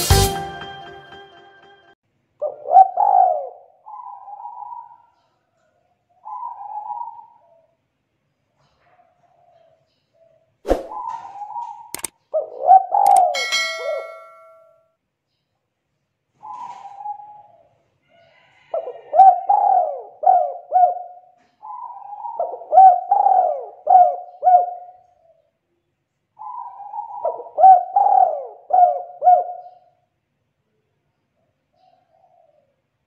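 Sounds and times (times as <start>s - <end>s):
bell-like chime: 0.0s - 2.0s, 13.4s - 14.8s
dove cooing: 2.4s - 5.2s, 6.1s - 7.8s, 10.9s - 14.2s, 16.4s - 17.8s, 18.5s - 25.5s, 26.4s - 30.0s, 31.7s - 32.8s.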